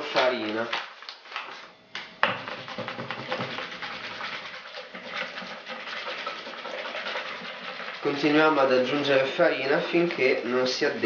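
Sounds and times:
whisk beating batter: 0:02.2 - 0:09.6.

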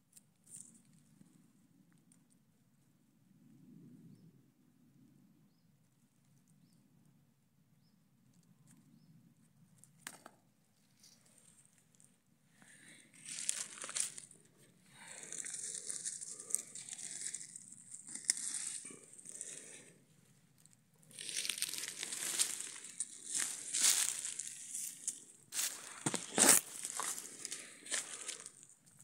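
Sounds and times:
dry leaves rustling and crackling: 0:13.1 - 0:14.4, 0:15.0 - 0:19.8, 0:21.1 - 0:28.6.

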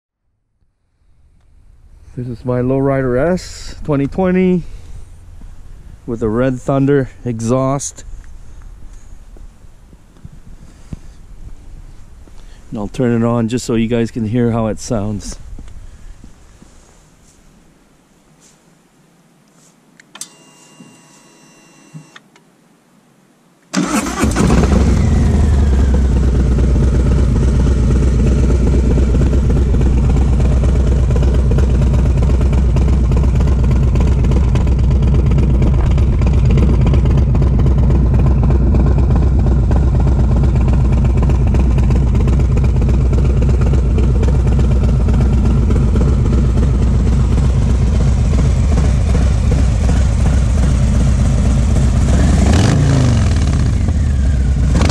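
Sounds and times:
motorcycle engine starting and idling: 0:01.3 - 0:08.3, 0:23.7 - 0:54.9.

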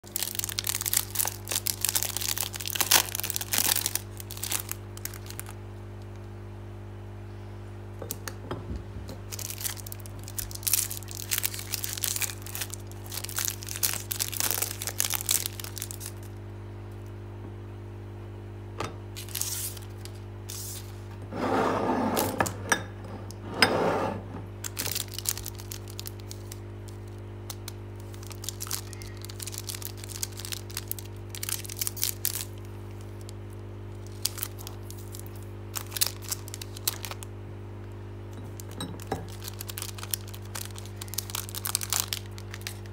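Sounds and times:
wrappers crinkling and tearing: 0:00.0 - 0:06.2, 0:09.3 - 0:16.4, 0:19.2 - 0:21.1, 0:24.6 - 0:37.3, 0:38.5 - 0:42.9.

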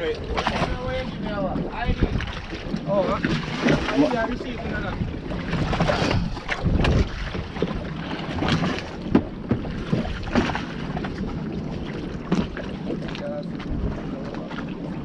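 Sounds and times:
water slapping against boat hulls: 0:00.0 - 0:15.0
wind buffeting microphone: 0:00.0 - 0:15.0
sharp splashes or knocks: 0:05.5 - 0:11.1.

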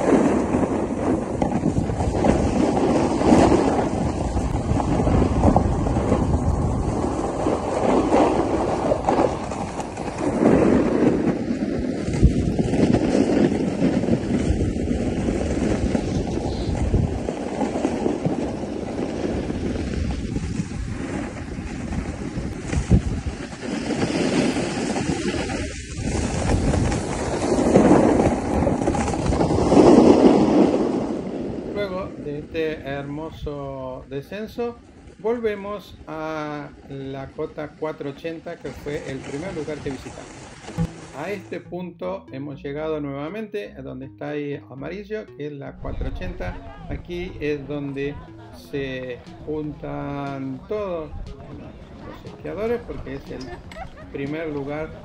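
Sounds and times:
skis hissing over snow: 0:00.0 - 0:31.6, 0:38.9 - 0:41.3
wind rushing over microphone: 0:00.0 - 0:41.5, 0:45.8 - 0:55.0.

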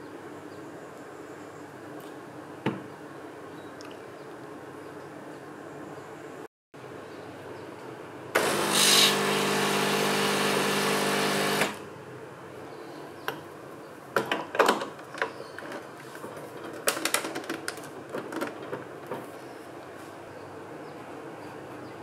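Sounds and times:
espresso machine pump buzzing: 0:08.4 - 0:11.8.

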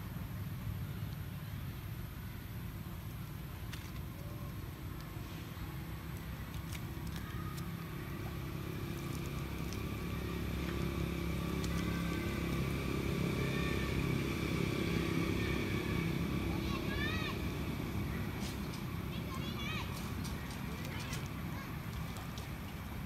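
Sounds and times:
vehicle engine humming: 0:00.0 - 0:23.0.

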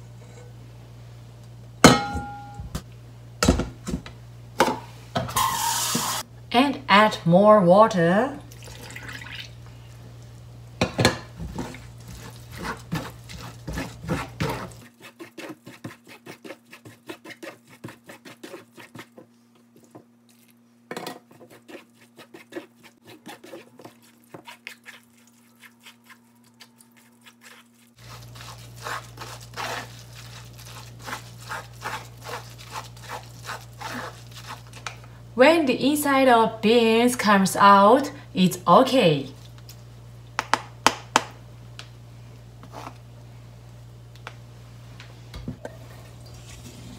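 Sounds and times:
wooden paddle scraping mesh strainer: 0:11.4 - 0:19.2, 0:21.3 - 0:26.3, 0:27.0 - 0:34.9.

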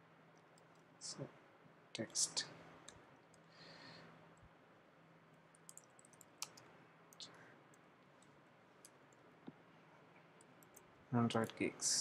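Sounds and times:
faint steady hum: 0:00.0 - 0:12.0
computer keyboard key clicks: 0:05.6 - 0:06.6.

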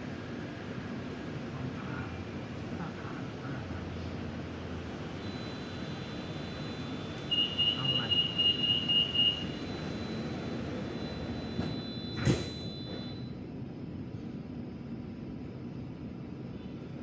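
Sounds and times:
metro train running rumble: 0:00.0 - 0:17.0
sharp clunk: 0:11.6 - 0:13.1.

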